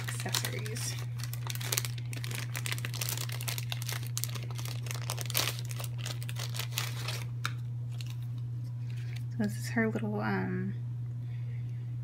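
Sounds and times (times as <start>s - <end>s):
plastic bag crinkling: 0.0s - 9.3s
steady low hum: 0.0s - 12.0s.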